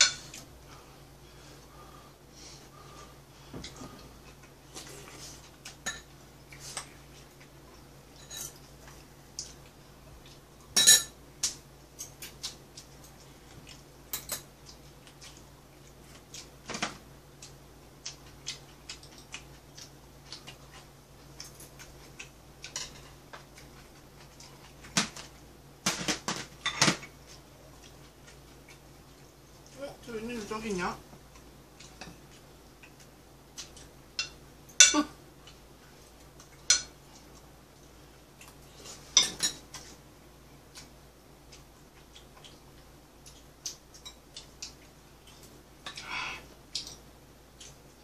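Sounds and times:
steady low hum: 0.0 - 48.0
spoon and chopsticks clinking on bowls: 5.8 - 6.1, 10.8 - 11.2, 36.7 - 37.0.

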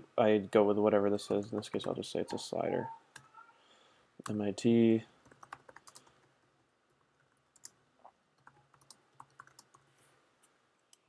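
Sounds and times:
faint keyboard typing: 1.2 - 2.4, 3.1 - 3.4, 5.2 - 11.0.

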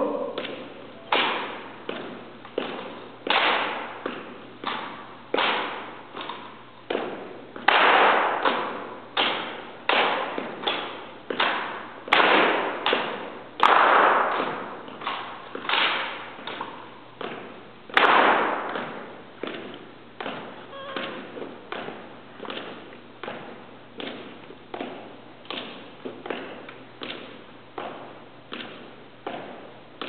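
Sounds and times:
hands slapping rifles: 7.0 - 20.4.

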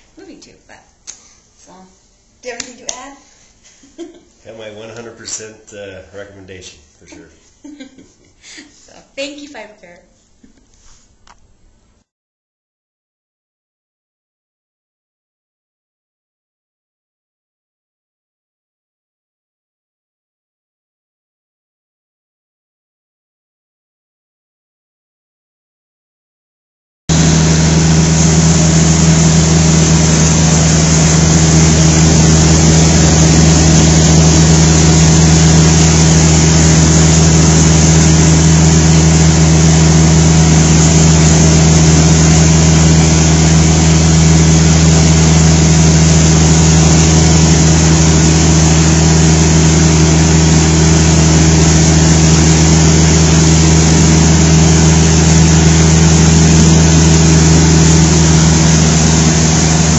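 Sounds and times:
carpet cleaning machine running: 27.1 - 59.9.

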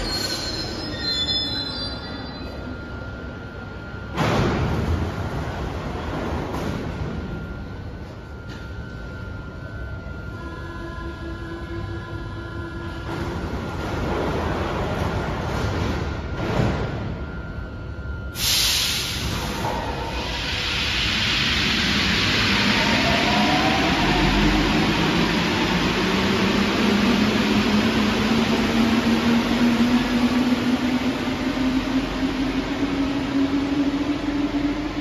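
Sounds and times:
faint high whine: 0.0 - 6.1
metro train rumble: 0.0 - 35.0
train motor whine rising: 18.4 - 35.0.

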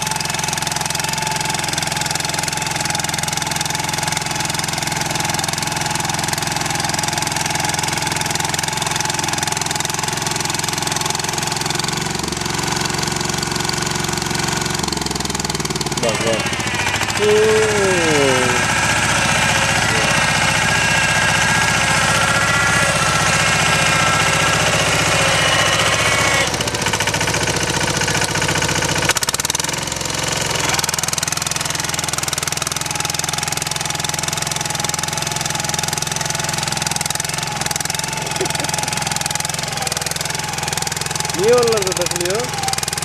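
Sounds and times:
rotary tiller engine running: 0.0 - 43.0.

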